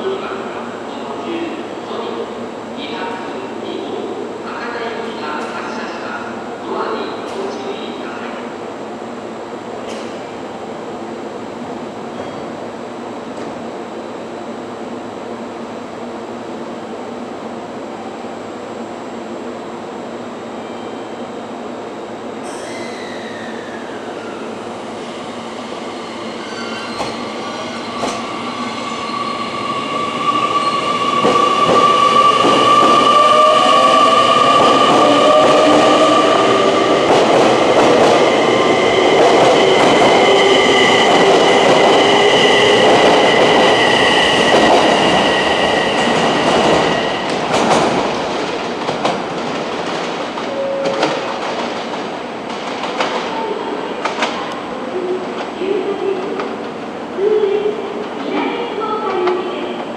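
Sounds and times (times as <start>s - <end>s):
electric train whine: 22.5s - 48.4s.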